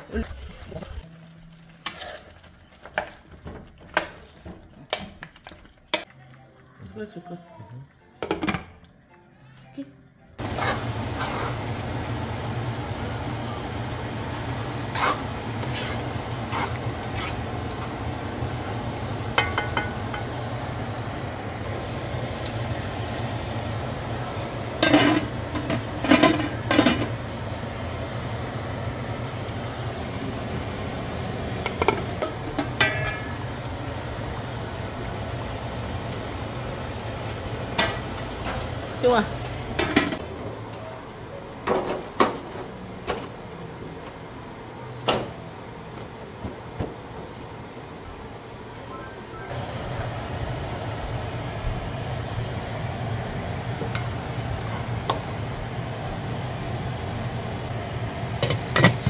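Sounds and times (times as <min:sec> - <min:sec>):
pots and pans clinking: 0:19.3 - 0:20.4, 0:24.8 - 0:27.2, 0:31.6 - 0:33.6, 0:37.7 - 0:38.7, 0:39.4 - 0:40.2, 0:58.3 - 0:59.0.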